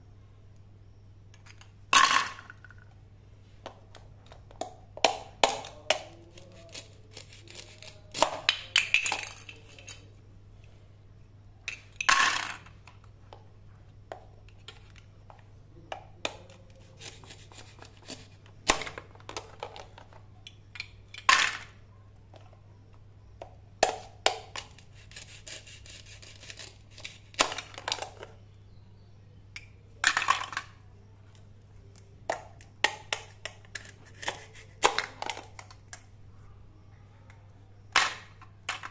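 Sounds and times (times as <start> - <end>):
plastic clacking on plastic: 29.6 - 36.1.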